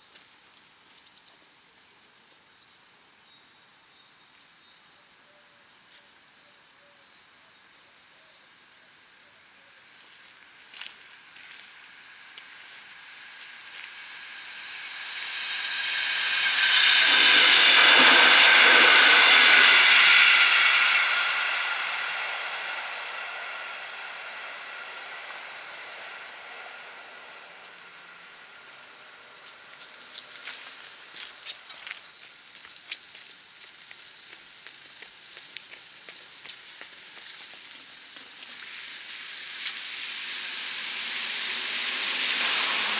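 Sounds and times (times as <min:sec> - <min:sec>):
passenger train passing: 0:09.4 - 0:32.4, 0:37.6 - 0:42.9
car tyres hissing on wet road: 0:09.8 - 0:42.9.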